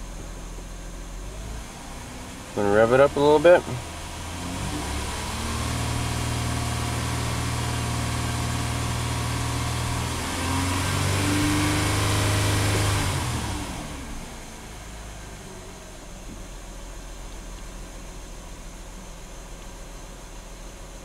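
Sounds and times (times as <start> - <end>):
car engine revving: 0.0 - 19.2.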